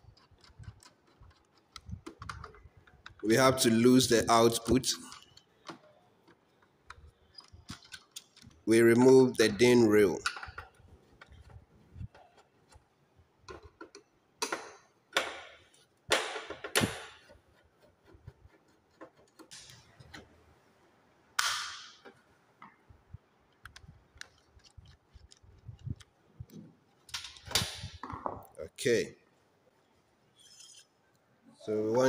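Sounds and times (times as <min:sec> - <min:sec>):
sharp knocks and scrapes: 0:10.3 - 0:20.6
screwdriver clicking and ticking: 0:23.5 - 0:26.1.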